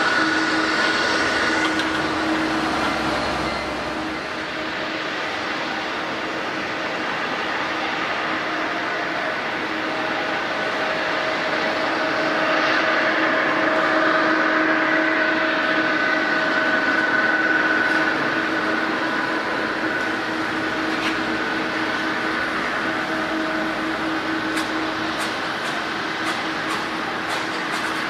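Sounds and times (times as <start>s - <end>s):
jet engines running: 0.0s - 28.0s.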